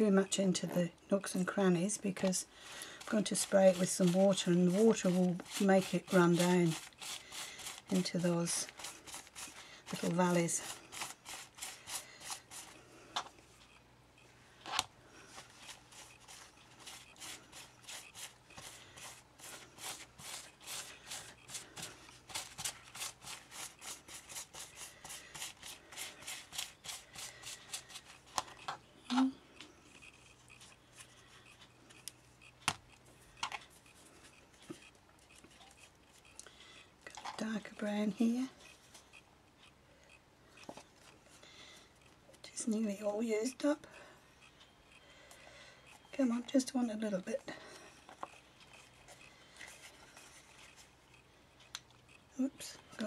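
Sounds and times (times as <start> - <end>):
paintbrush scratching on fabric: 2.2 - 12.8, 15.3 - 28.6, 29.6 - 32.6, 33.7 - 36.4, 48.0 - 51.2.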